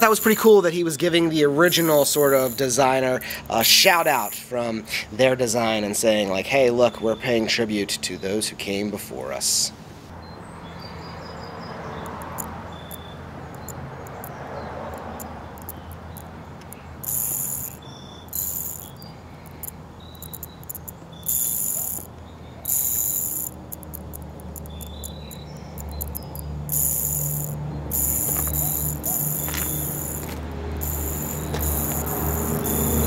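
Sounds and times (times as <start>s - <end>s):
spinner ring magnets clicking: 0.0s - 0.5s, 1.6s - 4.4s, 12.0s - 33.0s
high shrill buzz: 1.6s - 2.8s, 17.0s - 33.0s.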